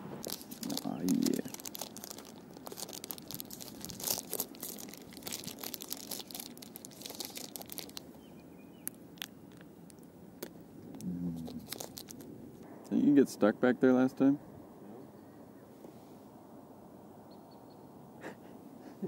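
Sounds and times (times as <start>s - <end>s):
plastic wrapper tearing and crinkling: 0.2s - 8.1s, 8.8s - 12.3s.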